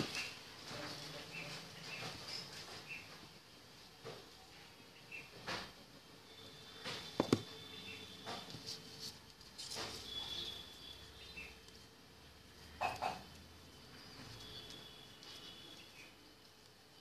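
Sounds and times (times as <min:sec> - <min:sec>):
paper rustling and scraping: 0:08.3 - 0:10.5.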